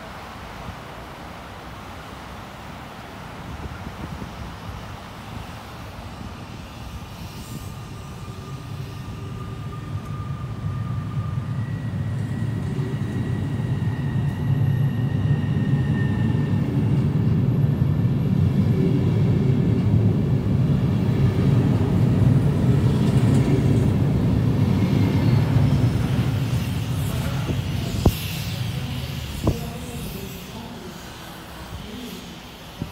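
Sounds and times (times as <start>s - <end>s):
faint whine: 0.0s - 32.9s
train wheels rumbling: 3.4s - 32.9s.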